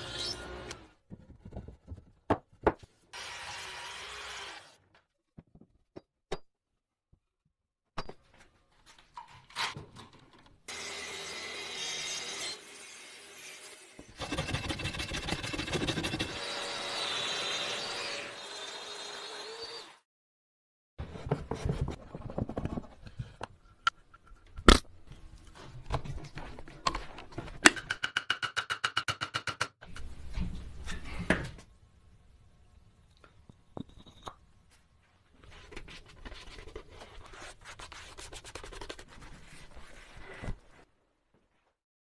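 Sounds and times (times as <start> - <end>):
rasping strokes: 14.2 - 16.5.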